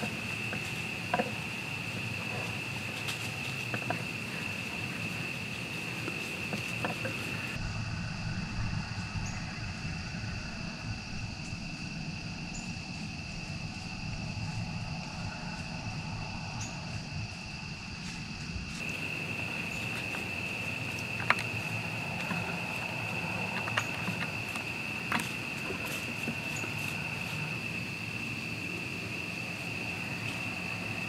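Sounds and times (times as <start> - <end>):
crickets droning: 0.0 - 31.0
low rumble: 7.3 - 31.0.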